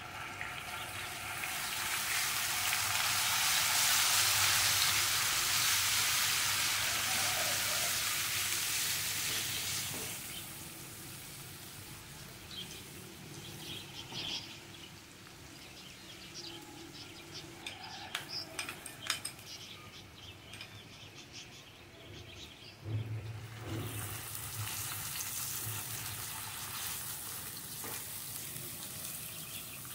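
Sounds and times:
garlic sizzling in hot oil: 0:00.0 - 0:16.4, 0:23.3 - 0:29.9.

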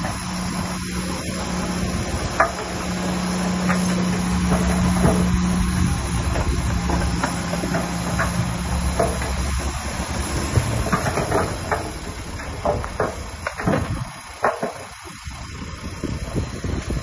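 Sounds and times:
diesel machine engine hum: 0:00.0 - 0:17.0
sharp knocks and clatters: 0:01.7 - 0:15.0.

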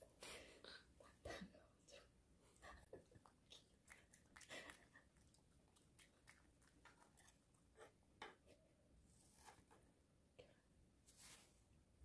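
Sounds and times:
dog chewing: 0:03.2 - 0:07.8.

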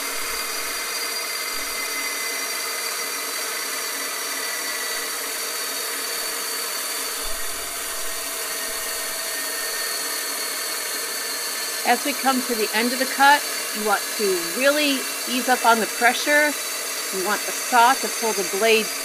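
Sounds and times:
band saw grinding glass: 0:04.3 - 0:19.0.

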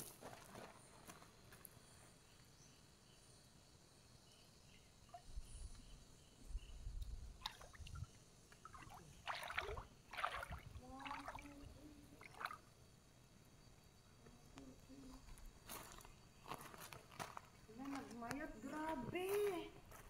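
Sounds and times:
stream water splashing: 0:07.4 - 0:12.8.

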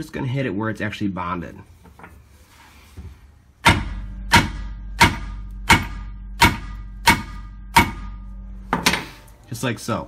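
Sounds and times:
sledgehammer striking metal: 0:03.6 - 0:09.2.

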